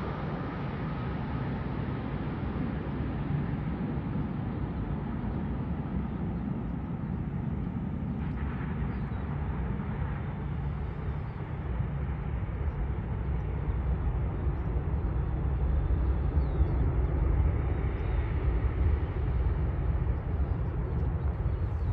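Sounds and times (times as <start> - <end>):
distant jet engines rumbling: 0.0 - 21.9.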